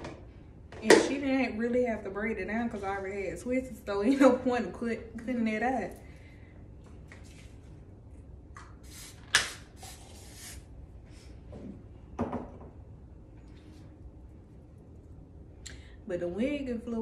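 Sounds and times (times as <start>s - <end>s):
spray bottle hissing: 8.8s - 10.6s.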